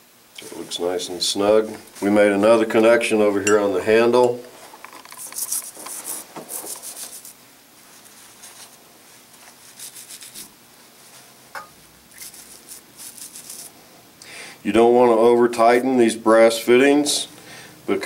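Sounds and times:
wet toothbrush scrubbing metal: 5.0s - 7.4s, 9.6s - 10.5s, 12.1s - 13.7s.

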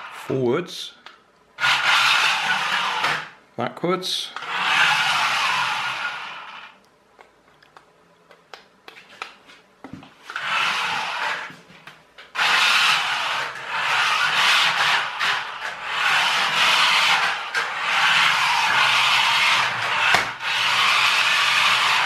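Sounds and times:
toy truck motor and gears running: 1.6s - 3.4s, 4.4s - 6.8s, 10.3s - 11.6s, 12.3s - 22.0s.

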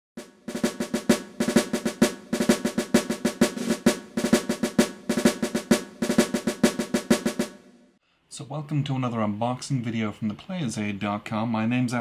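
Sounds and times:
snare drum strokes and rolls: 0.2s - 7.8s.

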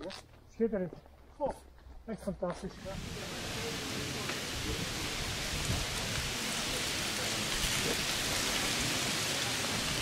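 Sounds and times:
steady rushing hiss: 2.6s - 10.0s.

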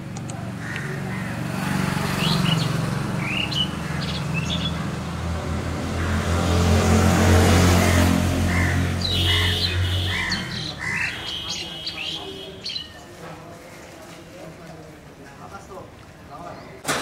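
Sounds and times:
birds chirping: 0.0s - 5.3s, 7.5s - 14.0s
vehicle engine humming: 0.0s - 12.6s.

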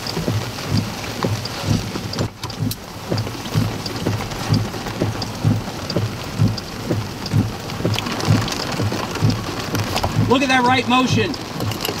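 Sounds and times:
regular low thump: 0.0s - 10.5s
heavy rain on a vehicle: 0.0s - 12.0s.

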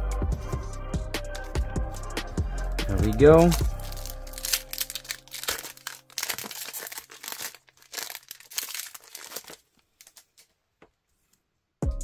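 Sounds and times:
foil wrapper crinkling and tearing: 2.9s - 10.5s.

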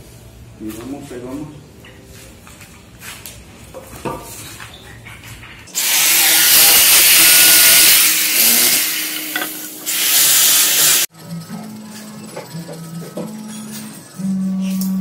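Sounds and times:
power tool working wood: 5.8s - 11.1s.

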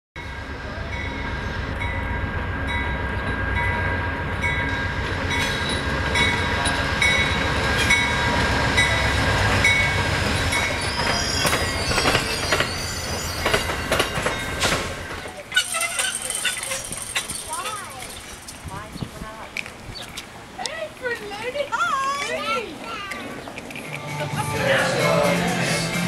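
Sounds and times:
diesel locomotive rumble: 0.2s - 21.6s
train cars clicking and knocking: 2.7s - 21.4s.

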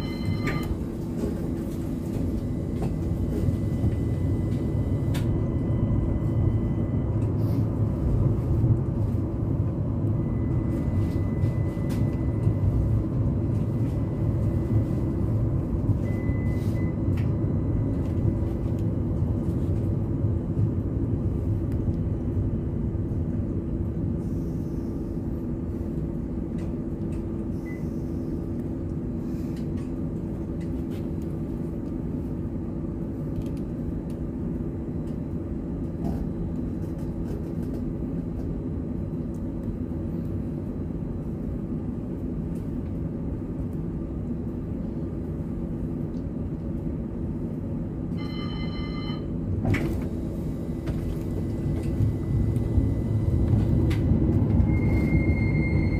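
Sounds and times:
multi-pitched ringing tone: 0.0s - 0.8s, 48.2s - 49.4s
tram cab hum and rumble: 0.0s - 55.9s.

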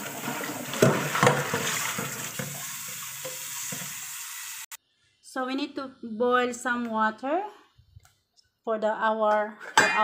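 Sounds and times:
tap water filling metal pot: 0.0s - 4.3s.

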